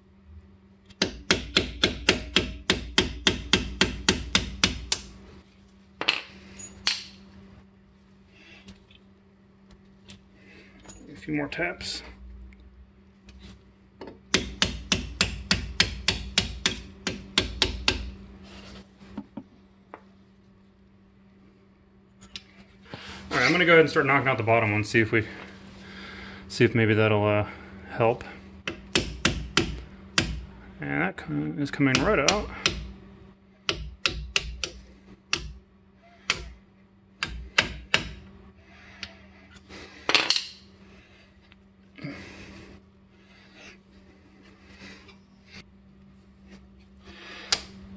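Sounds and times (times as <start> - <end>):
mallet tapping metal punch: 1.0 - 5.0, 14.3 - 18.1, 28.7 - 30.4, 33.7 - 35.6.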